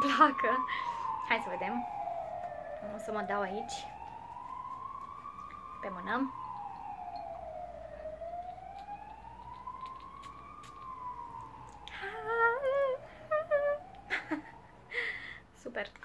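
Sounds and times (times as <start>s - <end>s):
siren wailing: 0.0s - 15.0s
woman humming: 11.9s - 14.0s.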